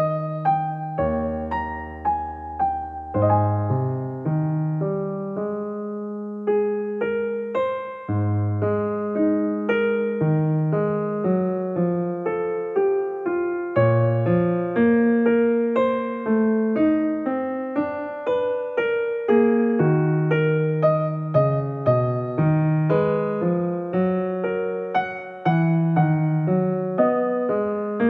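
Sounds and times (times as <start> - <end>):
electric piano melody: 0.0 - 28.0.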